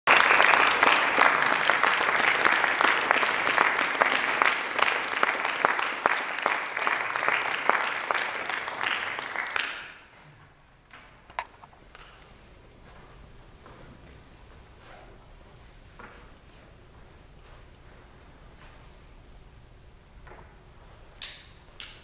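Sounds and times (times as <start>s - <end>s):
audience applause: 0.0s - 10.1s.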